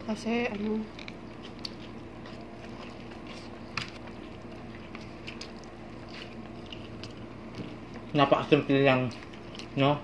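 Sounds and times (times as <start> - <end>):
faint steady hum: 0.0 - 10.0
wet chewing mouth clicks: 0.9 - 7.8.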